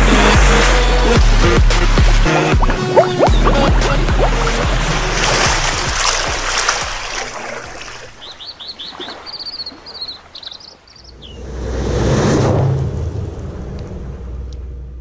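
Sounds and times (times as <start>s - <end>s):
birds chirping: 2.4s - 11.5s
whoosh: 11.3s - 15.0s
steady low rumble: 11.4s - 15.0s.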